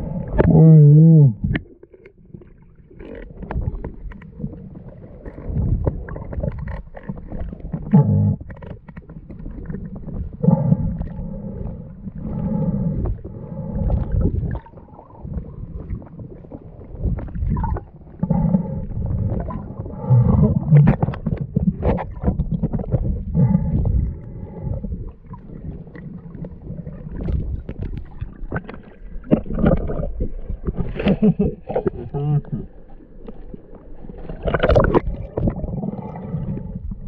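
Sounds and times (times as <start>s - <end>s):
short pitched moans: 0.0s - 1.5s
underwater rumble: 0.0s - 37.0s.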